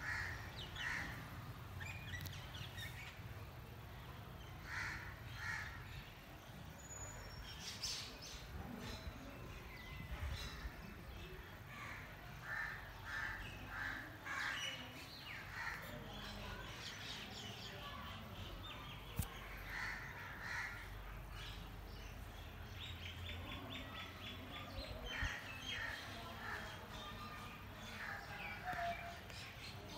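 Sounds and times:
crows cawing: 4.6 - 5.8.

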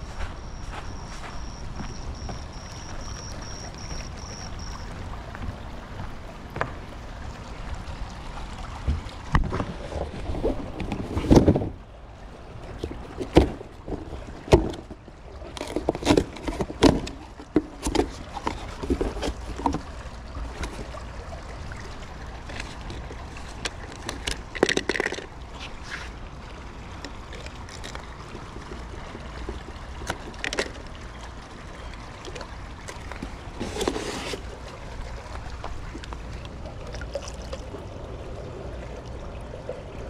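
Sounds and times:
box flaps clicking and scraping: 33.6 - 34.5.

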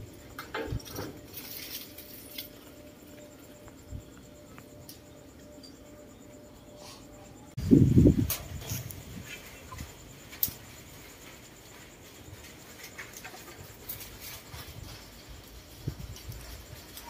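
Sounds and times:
leaves and twigs rustling: 0.0 - 4.7, 7.6 - 17.0.

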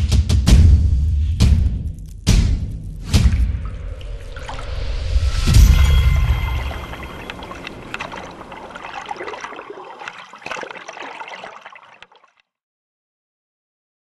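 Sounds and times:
water trickling and gurgling: 3.0 - 12.5.

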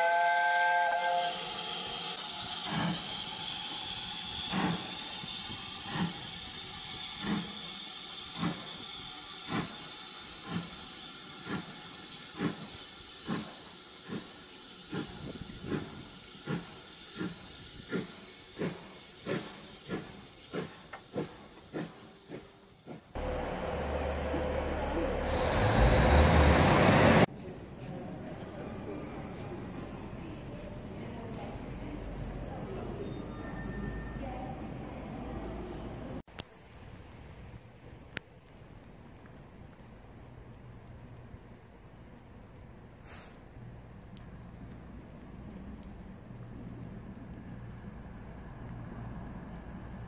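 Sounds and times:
steam hissing: 0.0 - 27.3, 43.0 - 43.4
steam locomotive exhaust chuffs: 0.0 - 27.3.

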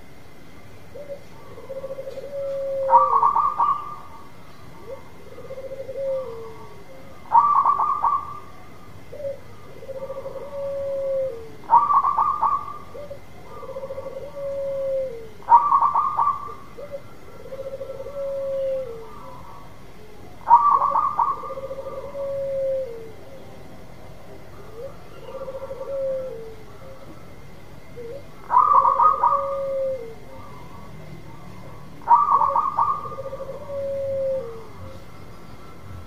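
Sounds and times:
dove cooing: 0.9 - 35.2.

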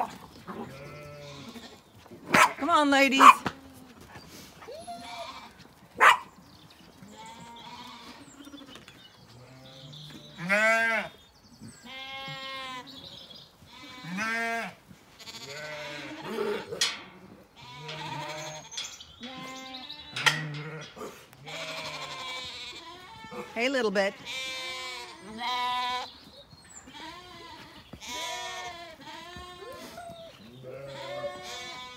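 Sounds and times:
sheep bleating: 0.5 - 1.8, 7.1 - 8.7, 9.4 - 11.2, 11.8 - 13.0, 13.7 - 16.7, 17.6 - 26.1, 26.8 - 31.9.

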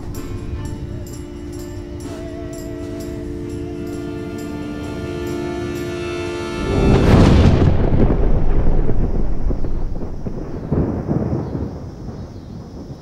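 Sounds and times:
thunderclap and rumble: 0.0 - 5.0, 6.5 - 13.0
held music chord: 0.0 - 9.2.

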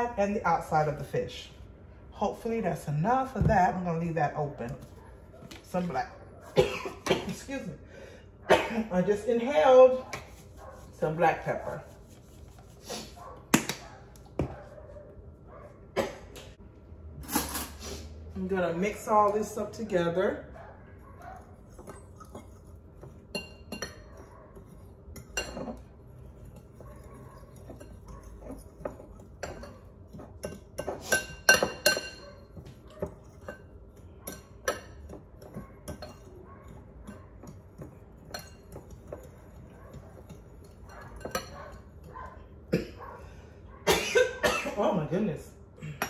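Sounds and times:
spoon clinking against a bowl: 21.2 - 42.4.

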